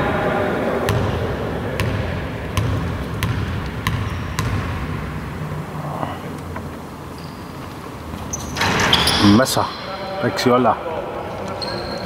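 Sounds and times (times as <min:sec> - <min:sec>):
basketball bouncing on wooden floor: 0:01.8 - 0:05.0.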